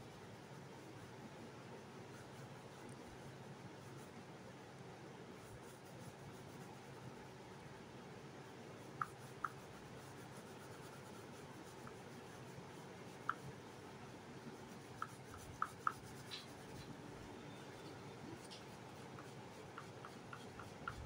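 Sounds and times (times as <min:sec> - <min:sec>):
oil pastel rubbing on paper: 0:05.4 - 0:07.1, 0:08.8 - 0:13.8, 0:14.4 - 0:16.9, 0:18.4 - 0:21.0.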